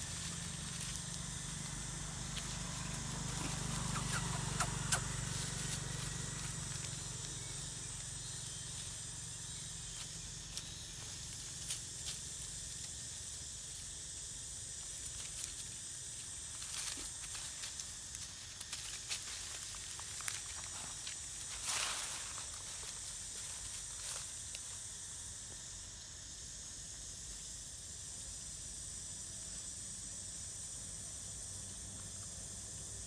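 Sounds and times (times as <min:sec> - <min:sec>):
rustles and taps in dry leaves: 0:00.0 - 0:09.0, 0:09.8 - 0:13.9, 0:14.8 - 0:24.8
high-pitched hiss: 0:00.0 - 0:33.0.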